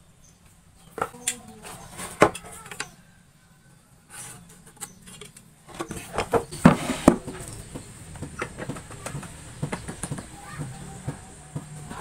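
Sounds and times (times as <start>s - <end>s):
wood knocking: 5.7s - 12.0s.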